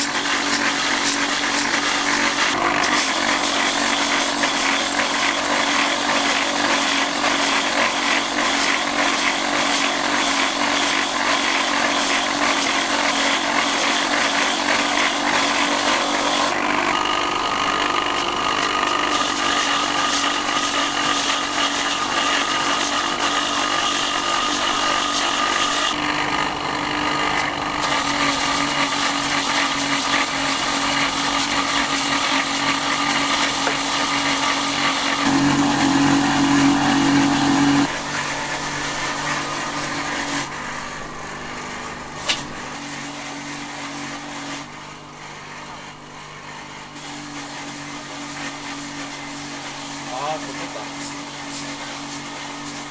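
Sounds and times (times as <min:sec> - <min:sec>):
machine whine: 0:33.6 - 0:42.8.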